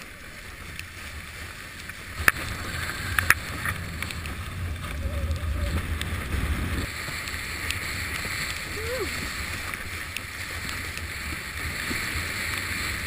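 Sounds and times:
rush of water and wind: 0:00.0 - 0:13.0
low rumble: 0:02.1 - 0:09.7.

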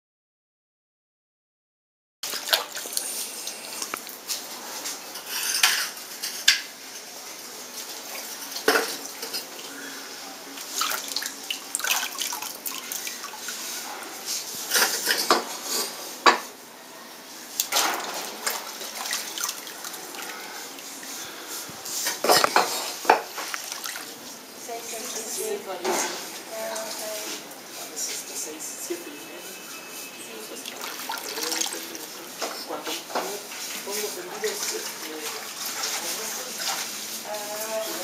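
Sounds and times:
glaze sloshing and dripping: 0:02.2 - 0:05.7, 0:10.5 - 0:15.4, 0:17.6 - 0:25.5, 0:29.7 - 0:38.0.

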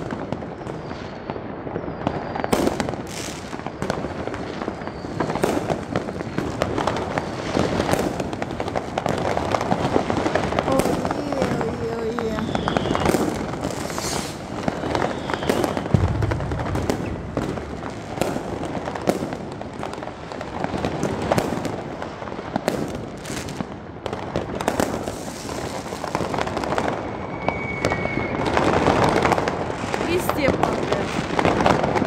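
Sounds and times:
firework whistle: 0:00.0 - 0:05.7, 0:10.9 - 0:17.5, 0:25.1 - 0:29.5
fireworks bangs and crackling: 0:00.0 - 0:32.0.

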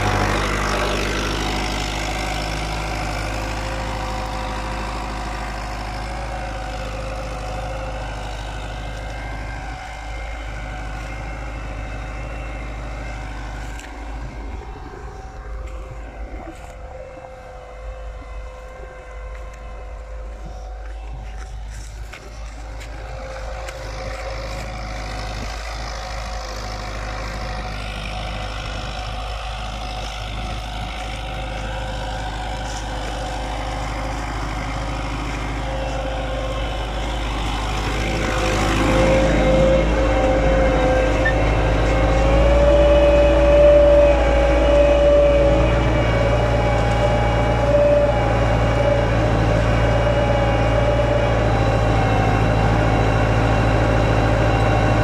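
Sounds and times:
tractor diesel engine under load: 0:00.0 - 0:55.0.

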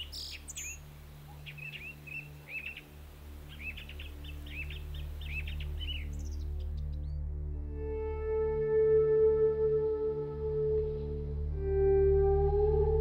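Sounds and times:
small birds chirping: 0:00.0 - 0:07.3
low steady drone: 0:00.0 - 0:13.0.

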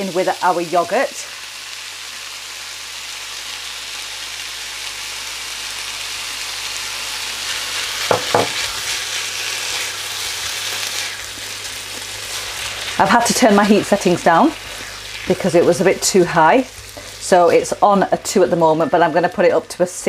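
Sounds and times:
chicken sizzling in pan: 0:00.0 - 0:20.0
utensil sounds: 0:07.5 - 0:19.6.

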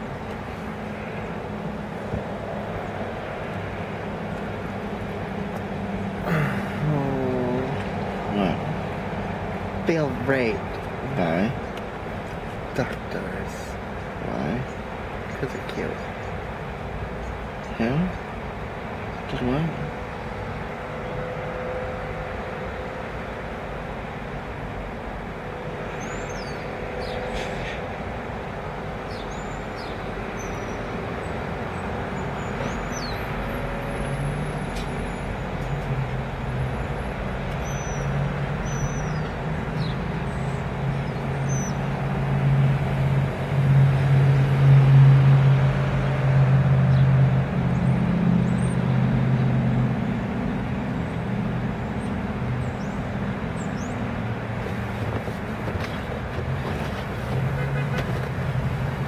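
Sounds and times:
car engine rumble: 0:00.0 - 0:21.0, 0:31.2 - 0:59.0.

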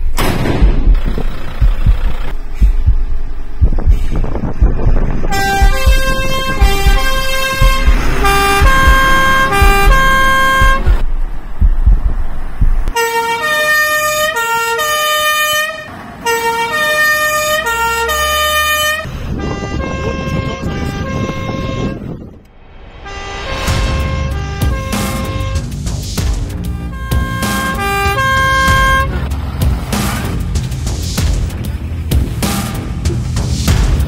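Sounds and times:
engines rumbling: 0:00.0 - 0:34.0
fire engine sirens wailing: 0:05.3 - 0:11.0, 0:13.0 - 0:22.2.

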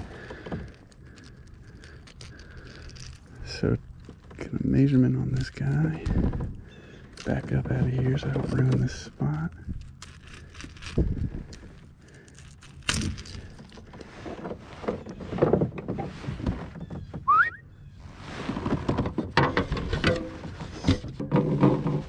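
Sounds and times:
fishing gear knocking and rattling: 0:00.0 - 0:17.2, 0:18.5 - 0:22.0
short rising squeak: 0:17.0 - 0:18.4.

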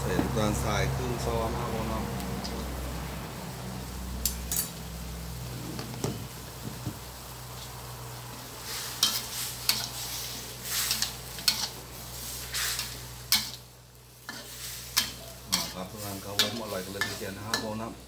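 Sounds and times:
food sizzling: 0:00.0 - 0:18.0
metal spatula scraping a wok: 0:08.6 - 0:17.9.

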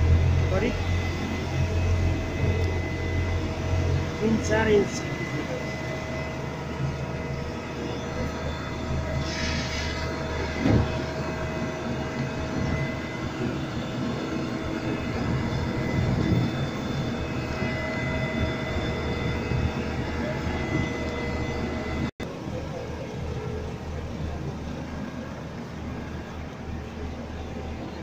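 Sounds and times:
constant whine: 0:00.0 - 0:28.0
diesel engines running: 0:00.0 - 0:28.0
brief hiss: 0:09.2 - 0:10.0.

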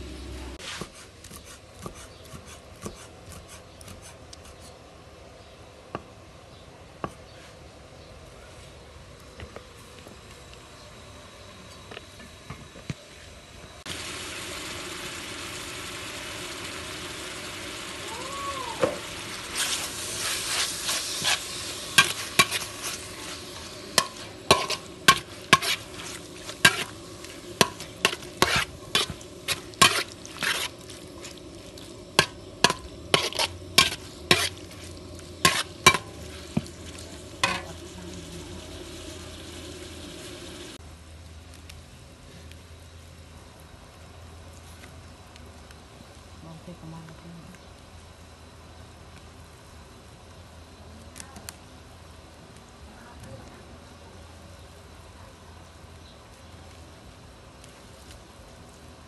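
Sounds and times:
meat sizzling in hot oil: 0:13.9 - 0:40.8
metal spatula scraping a wok: 0:19.5 - 0:37.8.

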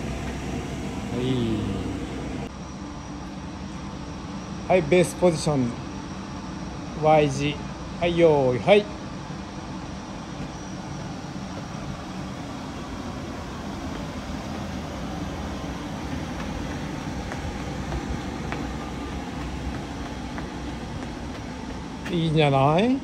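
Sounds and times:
continuous hiss: 0:00.0 - 0:02.5
low rumbling: 0:00.0 - 0:02.5.

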